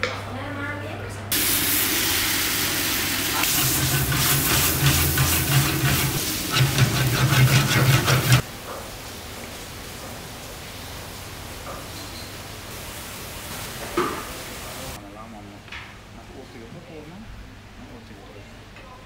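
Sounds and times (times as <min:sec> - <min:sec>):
noodles sizzling in a wok: 0:01.3 - 0:15.0
ladle clanking against wok: 0:03.4 - 0:08.4.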